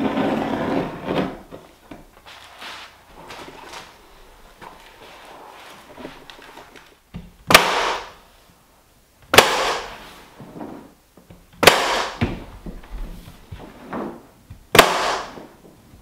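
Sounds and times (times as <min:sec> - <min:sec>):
paper rustling: 0:02.1 - 0:07.0
pneumatic staple gun firing: 0:07.5 - 0:08.1, 0:09.4 - 0:10.0, 0:11.6 - 0:12.2, 0:14.8 - 0:15.4.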